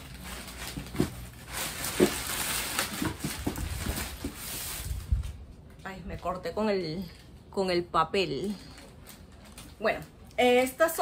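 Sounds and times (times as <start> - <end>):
paper rustling and crinkling: 0.0 - 5.8.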